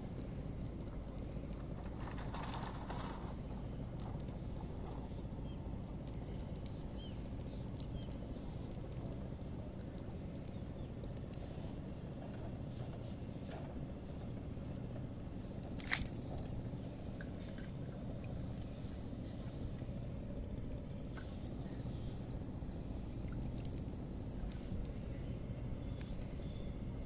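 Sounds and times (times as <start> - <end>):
steady low rumble: 0.0 - 27.0
fishing net clicks and rustles: 0.1 - 4.9, 5.7 - 9.2, 15.7 - 16.3.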